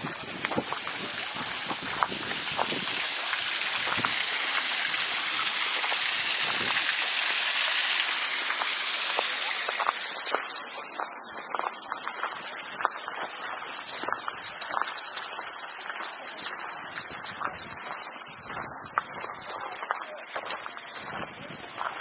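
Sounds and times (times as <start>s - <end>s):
water rushing from waterfall: 0.0s - 22.0s
footsteps on gravel: 8.5s - 22.0s.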